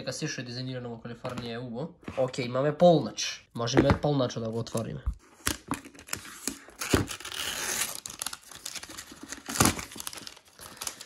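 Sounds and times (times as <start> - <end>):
wrapping rustling and tearing: 6.0 - 11.0.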